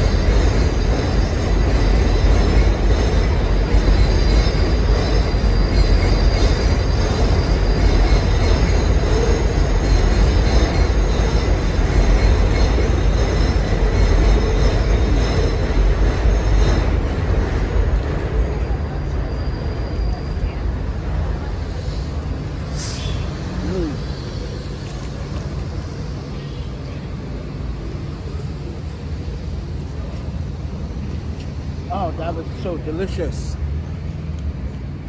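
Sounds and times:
high wheel squeal: 0:00.0 - 0:17.2, 0:18.3 - 0:27.5
passing train rumble: 0:00.0 - 0:35.0.

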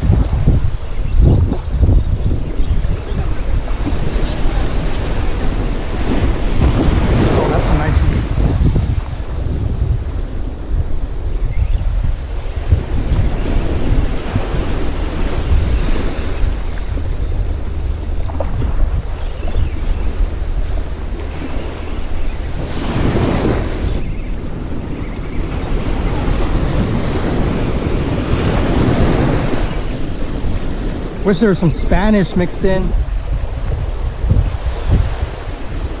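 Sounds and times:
wind buffeting microphone: 0:00.0 - 0:36.0
small waves breaking: 0:02.8 - 0:11.2.

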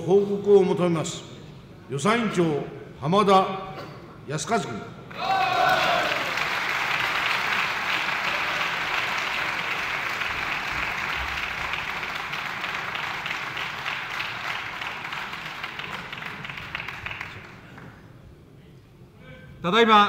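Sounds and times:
crowd applauding: 0:05.1 - 0:18.0.

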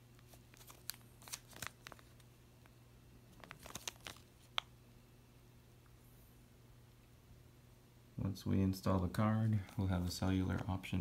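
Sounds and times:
plastic bag crinkling: 0:00.2 - 0:02.3, 0:03.3 - 0:04.7.

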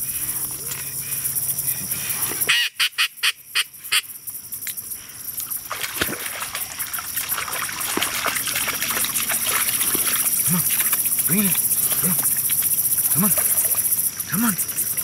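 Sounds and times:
dog wading through water: 0:05.6 - 0:15.0.

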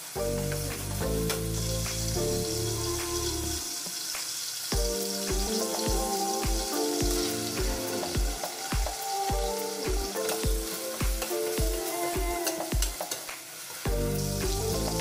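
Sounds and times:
food sizzling in hot oil: 0:00.0 - 0:15.0
background music with beat: 0:00.2 - 0:15.0.

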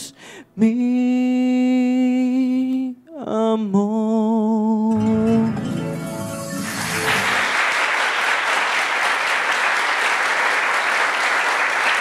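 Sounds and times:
audience applauding: 0:06.5 - 0:12.0.

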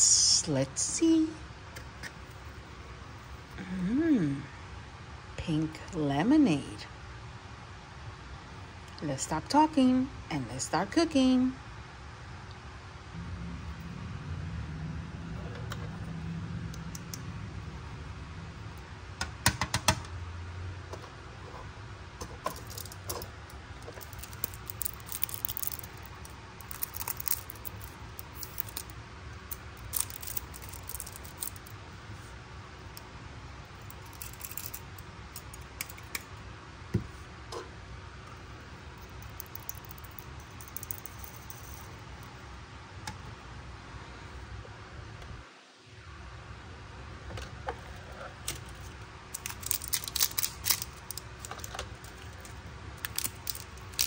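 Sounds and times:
low hum: 0:11.5 - 0:19.4, 0:20.1 - 0:54.0
small plastic pieces clicking: 0:22.5 - 0:28.9, 0:29.5 - 0:31.8, 0:33.8 - 0:36.3, 0:39.0 - 0:41.8, 0:49.3 - 0:54.0.

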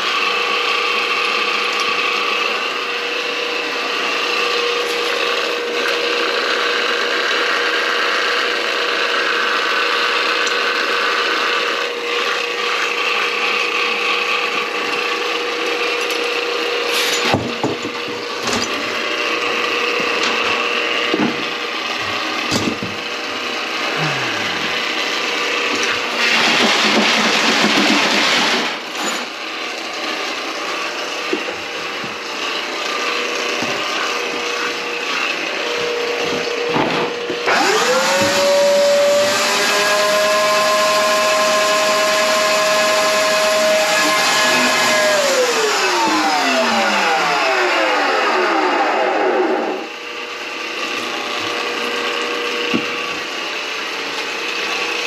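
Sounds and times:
motor high whine: 0:00.0 - 0:26.4, 0:28.7 - 0:55.0
drain auger cable rattling: 0:24.1 - 0:29.9.

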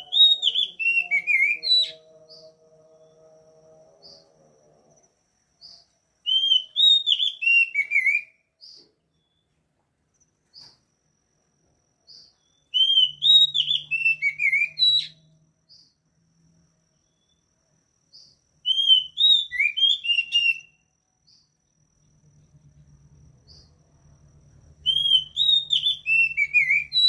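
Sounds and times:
bird singing whistled notes: 0:00.0 - 0:03.4, 0:04.0 - 0:04.3, 0:05.6 - 0:09.5, 0:12.1 - 0:16.0, 0:17.0 - 0:17.5, 0:18.1 - 0:21.5, 0:23.4 - 0:23.8, 0:24.8 - 0:27.0.

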